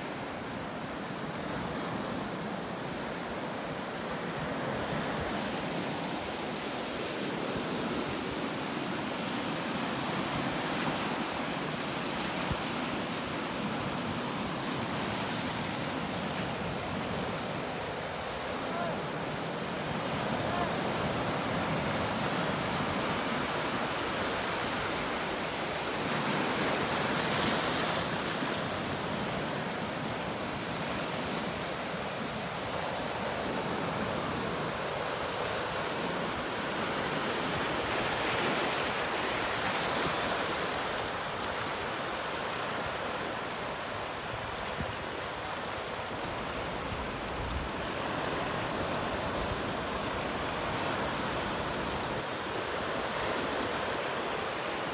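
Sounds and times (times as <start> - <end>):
ocean surf breaking on rocks: 0.0 - 54.9.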